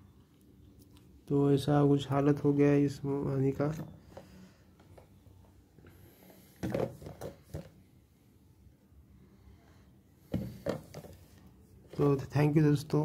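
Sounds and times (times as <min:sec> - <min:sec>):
plastic jar knocks and rubs: 0:06.6 - 0:07.8, 0:10.3 - 0:11.3.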